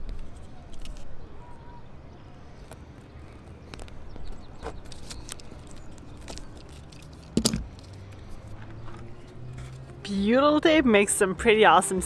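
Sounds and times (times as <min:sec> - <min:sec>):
knock and crinkle: 0:07.2 - 0:07.8.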